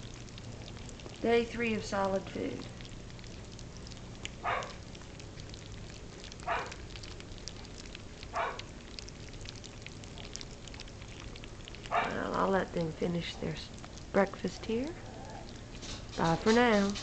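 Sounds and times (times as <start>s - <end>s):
puppies lapping food: 0.0s - 17.0s
puppy whimpering: 14.9s - 15.6s.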